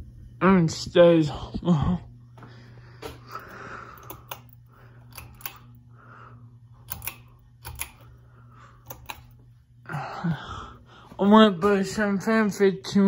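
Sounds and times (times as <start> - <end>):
ceiling fan motor hum: 0.0 - 13.0
pull-chain switch clicks: 4.0 - 5.8, 6.8 - 8.1, 8.8 - 9.4.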